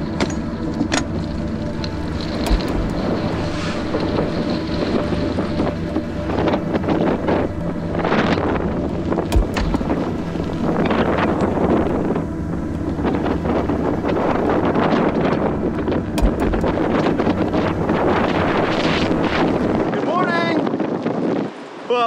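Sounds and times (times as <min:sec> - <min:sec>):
strong wind buffeting microphone: 0:00.0 - 0:22.0
sharp knock: 0:09.3 - 0:10.0, 0:16.2 - 0:16.7.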